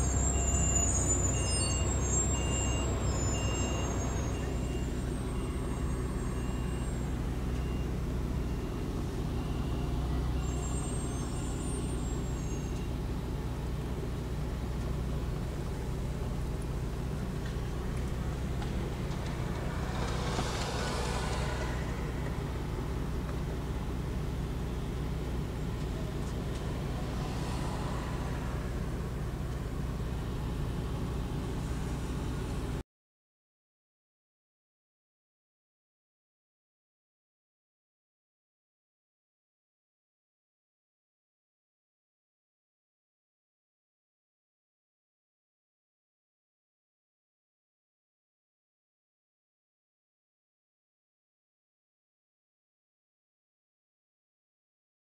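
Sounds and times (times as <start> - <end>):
thin high squeals: 0.0 - 7.1, 10.4 - 13.0
car engine and road rumble: 0.0 - 32.8.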